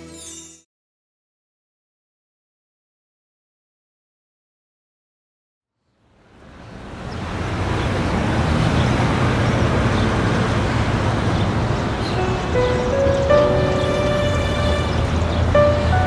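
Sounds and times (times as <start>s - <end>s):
distant road traffic rumble: 6.0s - 16.0s.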